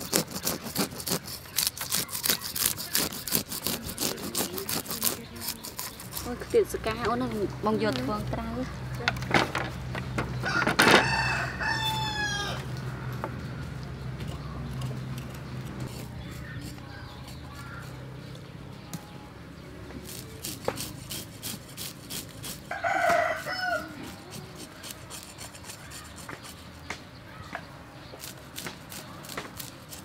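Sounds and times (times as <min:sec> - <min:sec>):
knife scraping fish scales: 0:00.0 - 0:06.7, 0:14.8 - 0:18.1, 0:20.0 - 0:26.7, 0:28.2 - 0:30.0
chicken calling: 0:10.3 - 0:13.6
rooster crowing: 0:10.4 - 0:13.1, 0:22.7 - 0:24.2.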